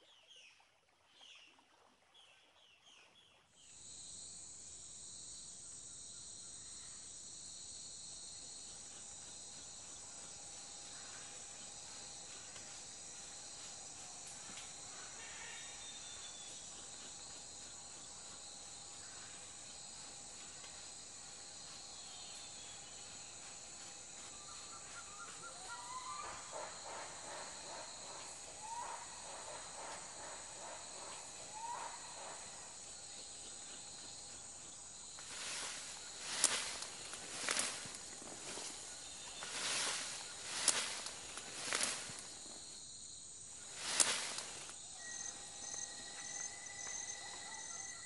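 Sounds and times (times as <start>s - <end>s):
insects chirring: 3.7s - 48.0s
cockatoo calls: 25.0s - 32.6s.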